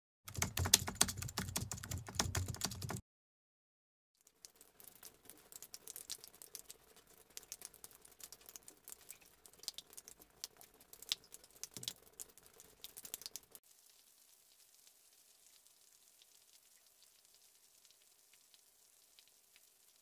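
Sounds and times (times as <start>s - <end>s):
soft steady rain hiss: 4.2s - 20.0s.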